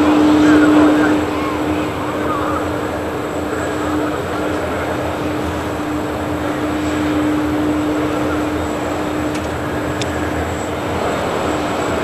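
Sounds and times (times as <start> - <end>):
jet aircraft roar: 0.0 - 12.0.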